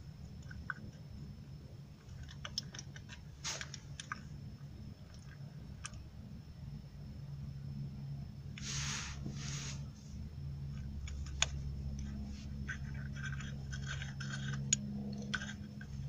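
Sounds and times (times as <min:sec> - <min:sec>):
steady low hum: 0:00.0 - 0:16.0
short hissing: 0:03.4 - 0:03.7, 0:08.6 - 0:10.1.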